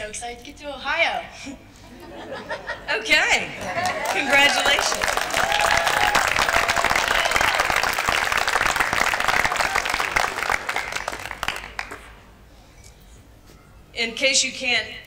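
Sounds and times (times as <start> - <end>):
crowd applauding: 3.6 - 12.2.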